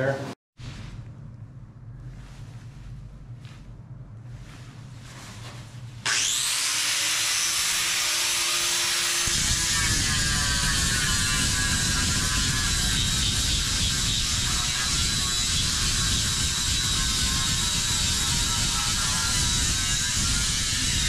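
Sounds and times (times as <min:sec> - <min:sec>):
angle grinder whine: 0:06.0 - 0:21.0
disc grinding fiberglass: 0:06.1 - 0:21.0.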